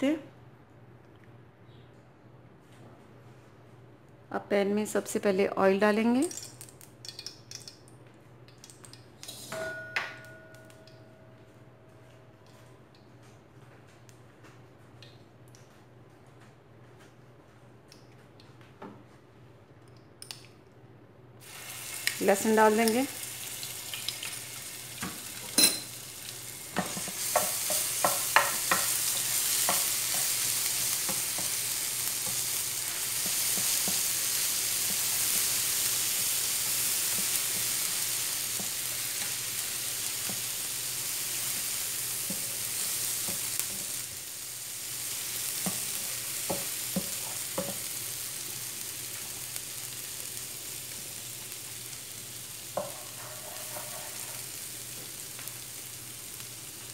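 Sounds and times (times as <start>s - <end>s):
garlic sizzling in oil: 21.4s - 56.9s
spatula tapping pan: 26.8s - 30.4s, 45.6s - 47.8s, 52.8s - 54.2s.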